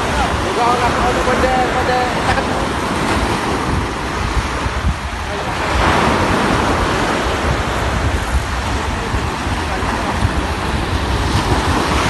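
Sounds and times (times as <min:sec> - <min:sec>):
surf washing onto beach: 0:00.0 - 0:12.0
wind buffeting microphone: 0:00.0 - 0:12.0.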